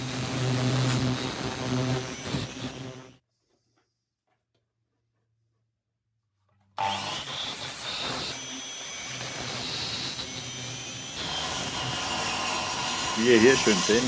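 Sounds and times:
dust extraction vacuum running: 0.0 - 3.2, 9.0 - 14.0
mitre saw running: 0.0 - 3.2, 6.8 - 14.0.

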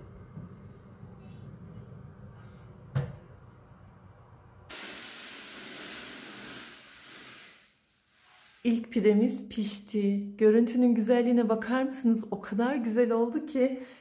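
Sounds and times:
steady hiss: 4.7 - 8.9.

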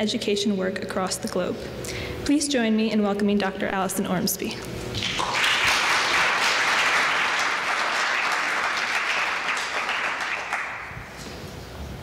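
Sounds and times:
audience applauding: 4.9 - 11.1.

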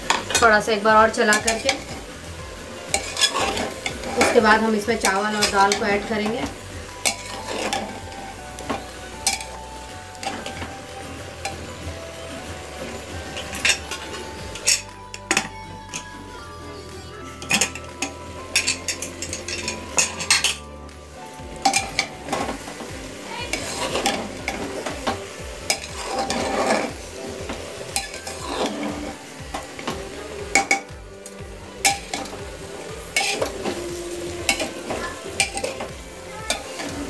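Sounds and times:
faint background music: 0.0 - 37.0
vegetables sizzling in oil: 0.0 - 37.0
spatula scraping pot: 2.8 - 9.6, 23.5 - 30.9, 33.1 - 37.0
metal clinking against pot: 8.6 - 9.6, 35.4 - 35.9.

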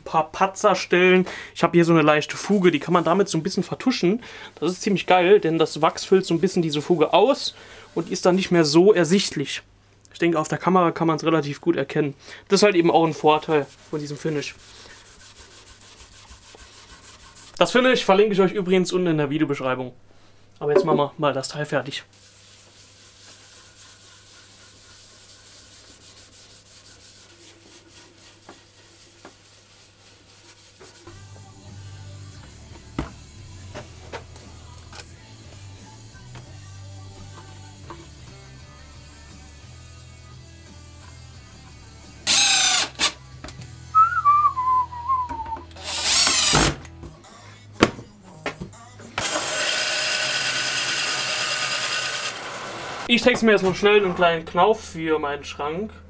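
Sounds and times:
rag scrubbing on wood: 12.6 - 17.6, 22.1 - 31.2
bandsaw cutting wood: 42.3 - 43.2, 45.8 - 46.8, 49.2 - 53.1
cordless drill driving screws: 42.3 - 43.2, 45.8 - 46.8.

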